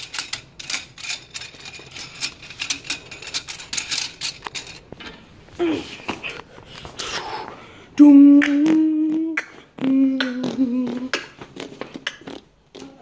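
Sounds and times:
child humming: 8.0s - 11.4s.

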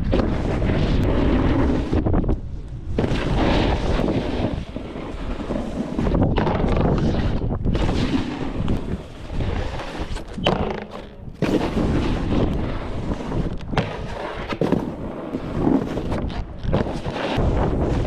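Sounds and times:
snowboard edges scraping snow: 0.0s - 18.0s
wind rushing over microphone: 0.0s - 18.0s
snowboard landing thuds: 10.3s - 12.5s.

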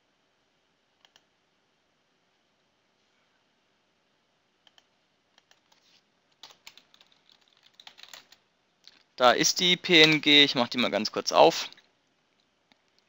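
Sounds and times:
computer mouse and keyboard clicks: 4.6s - 9.1s.

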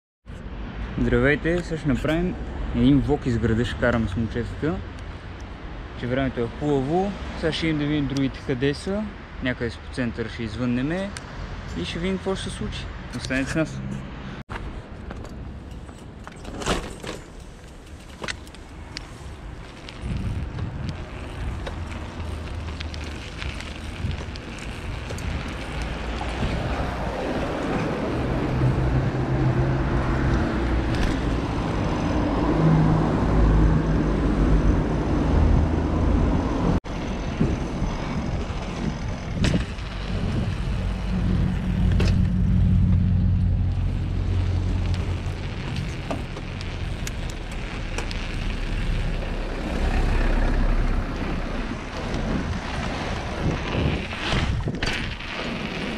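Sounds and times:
car traffic: 0.2s - 55.9s
bike tyre rumble: 14.5s - 55.9s
wind on microphone: 19.4s - 55.9s.

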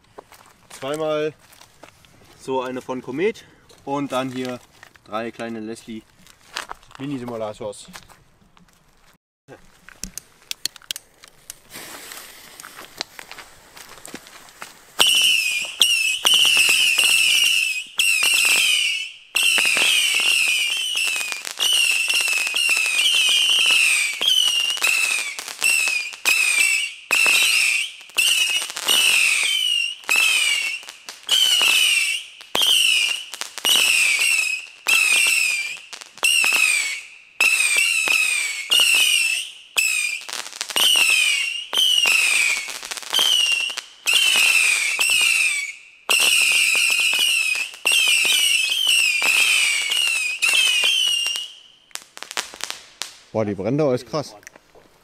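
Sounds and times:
firework whistles: 14.9s - 53.2s.

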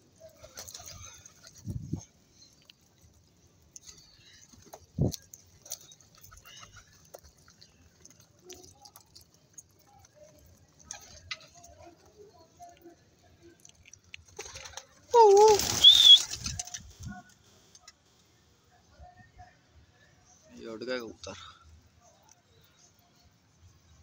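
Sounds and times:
pigeon wings flapping: 14.3s - 16.9s.

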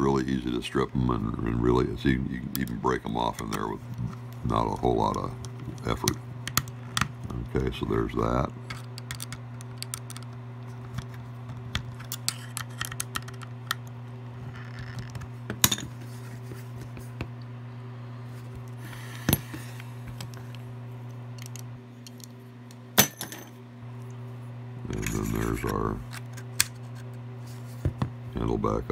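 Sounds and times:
steady low hum: 0.0s - 28.9s
screwdriver and parts clicking: 8.7s - 13.9s, 21.4s - 22.4s.

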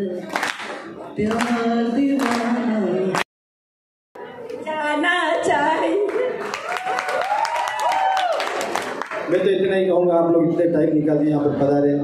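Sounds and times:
people singing: 0.0s - 3.2s.

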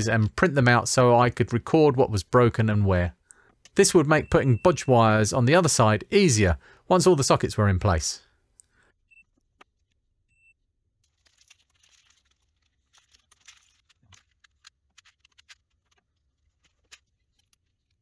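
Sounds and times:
faint high beeps: 4.1s - 5.0s
small tools clicking and rustling: 11.0s - 18.0s.

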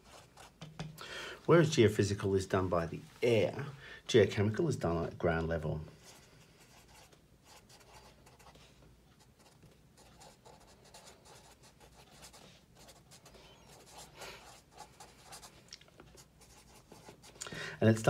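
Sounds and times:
marker writing on paper: 6.0s - 8.6s, 9.2s - 15.5s.

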